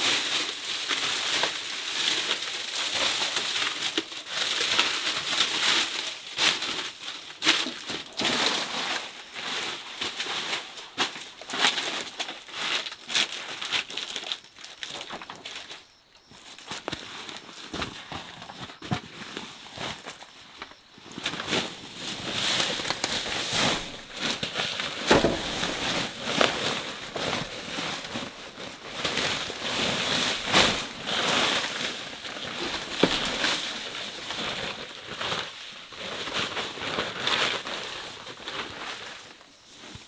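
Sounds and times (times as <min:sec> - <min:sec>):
dry leaves crackling underfoot: 0:00.0 - 0:40.0
plastic sacks rustling: 0:00.0 - 0:40.0
rice husks pouring: 0:21.9 - 0:34.4.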